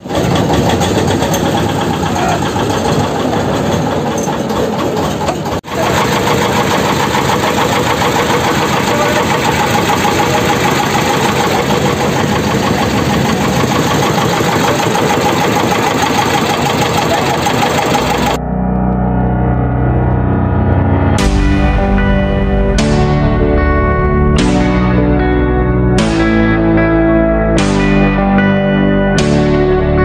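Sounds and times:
motorboat engine chugging: 0:00.0 - 0:18.4.

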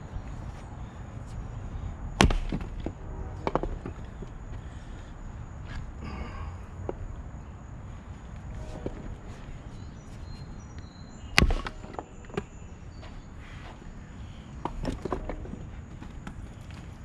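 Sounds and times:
axe splitting wood crack: 0:02.2 - 0:02.9, 0:11.3 - 0:12.1.

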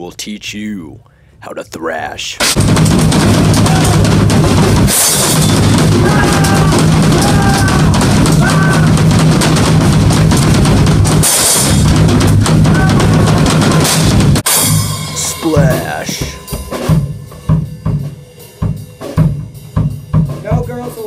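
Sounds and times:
drum kit pounding: 0:02.4 - 0:21.0
crashing cymbals: 0:02.6 - 0:06.0, 0:13.4 - 0:20.2.

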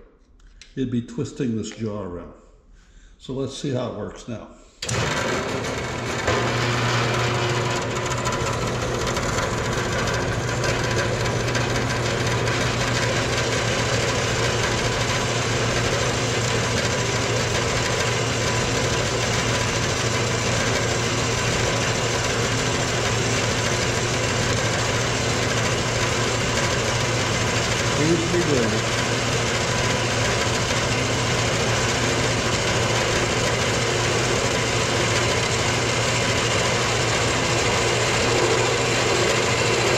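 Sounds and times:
metal-cutting bandsaw running: 0:04.8 - 0:39.9.

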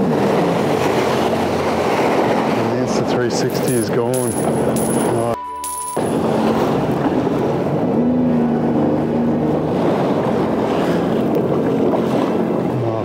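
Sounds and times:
rush of wind and water: 0:00.0 - 0:05.4, 0:06.0 - 0:13.0
jet ski engine running: 0:06.2 - 0:13.0.

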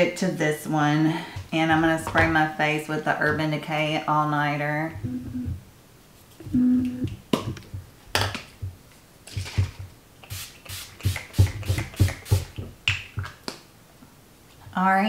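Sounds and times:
spray pump spritzes: 0:10.2 - 0:12.5.

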